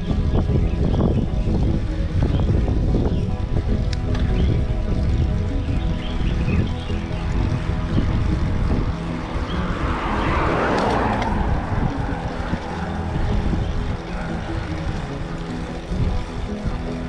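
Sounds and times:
background music: 0.0 - 17.0
rushing noise: 3.4 - 17.0.

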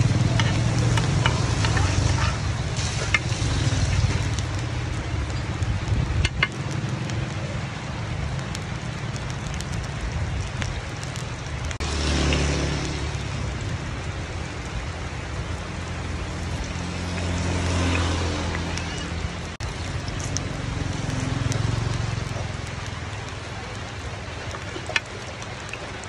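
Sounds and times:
batter sizzling in pan: 0.0 - 7.6, 8.3 - 14.3.

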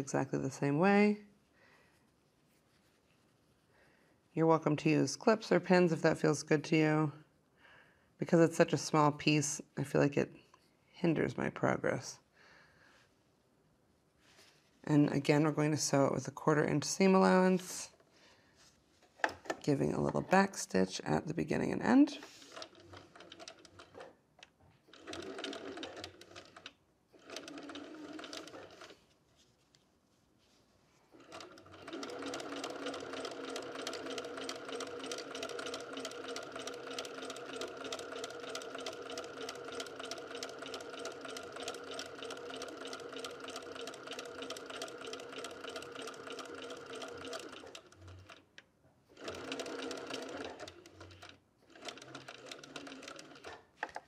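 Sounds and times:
sewing machine stitching: 22.2 - 24.2, 24.9 - 29.0, 31.1 - 48.5, 49.1 - 54.0.

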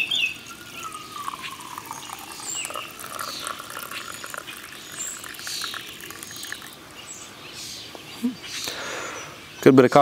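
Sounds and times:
coffee pouring into cup: 0.0 - 6.8.

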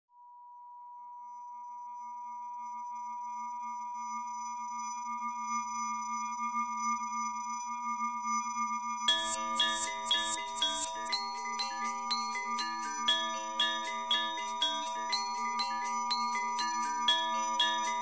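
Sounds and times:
electronic drone: 9.1 - 18.0.

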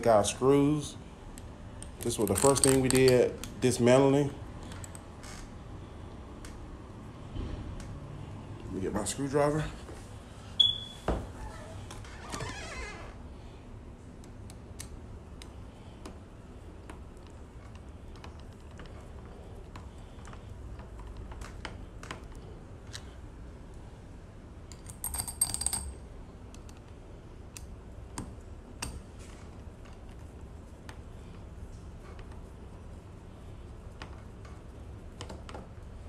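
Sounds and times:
clicks and taps of handling screws: 1.4 - 3.6, 24.7 - 29.0.

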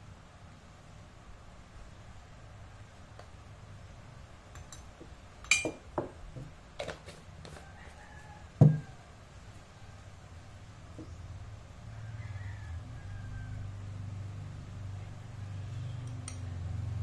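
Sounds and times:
distant rooster crowing: 7.4 - 14.4
heavy thump of shaker set down: 8.6 - 8.8.

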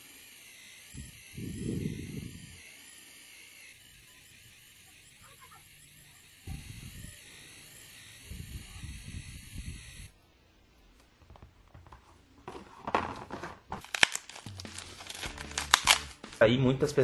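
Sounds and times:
plastic cling film crinkling: 12.5 - 16.4.

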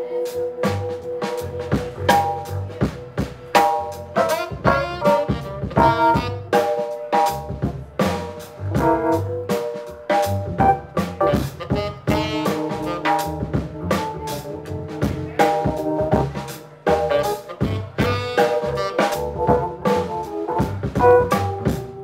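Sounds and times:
drum kit: 0.0 - 22.0
keyboard: 0.0 - 22.0
upright bass: 0.0 - 22.0
saxophone melody: 4.0 - 6.8, 10.6 - 22.0.

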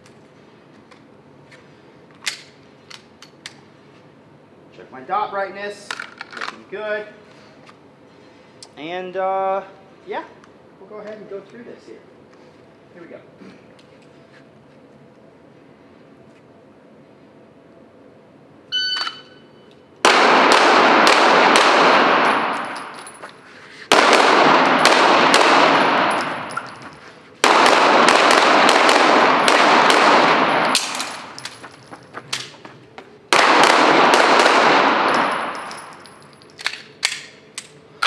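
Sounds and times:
shot timer beep: 18.7 - 19.7
pistol shots echoing: 20.0 - 23.0, 23.9 - 26.8, 27.4 - 31.4, 33.3 - 35.9.

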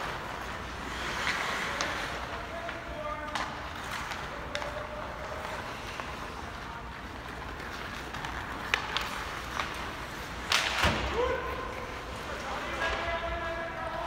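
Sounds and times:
skates scraping on ice: 0.0 - 14.0
skates hissing on ice: 0.1 - 2.3.

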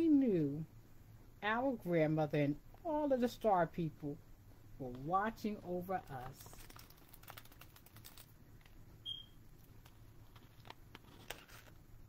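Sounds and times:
short high squeak: 9.0 - 9.4
book handling noise: 9.6 - 11.9.

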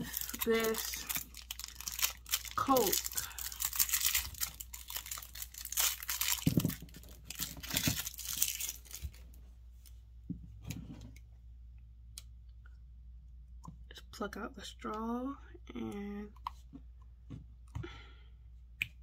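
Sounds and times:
plastic wrapper crinkling and tearing: 0.0 - 9.9.

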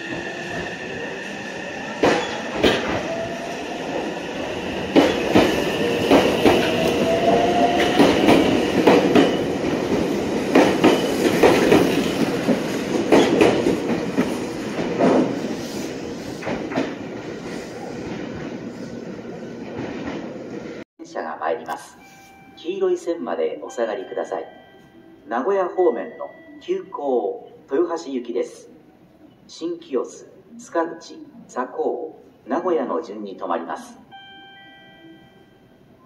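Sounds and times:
train wheels clicking over rail joints: 4.8 - 7.0, 7.7 - 15.4.

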